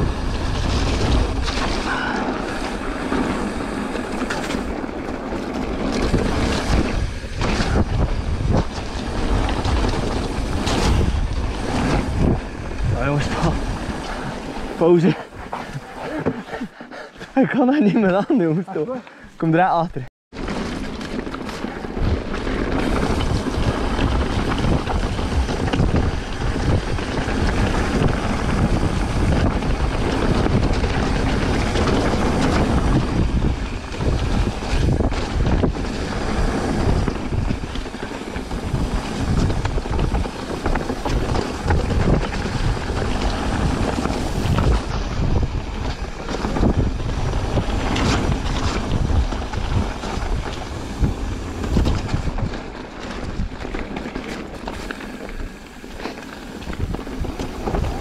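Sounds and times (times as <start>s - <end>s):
bike rattling on rough trail: 0.0s - 58.0s
wind buffeting microphone: 0.0s - 58.0s.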